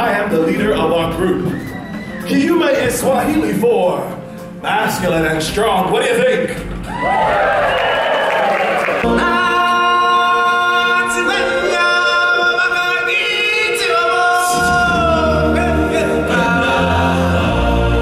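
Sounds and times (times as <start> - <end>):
low musical accompaniment: 0.0 - 7.7, 9.0 - 18.0
voices singing sustained notes: 9.0 - 18.0.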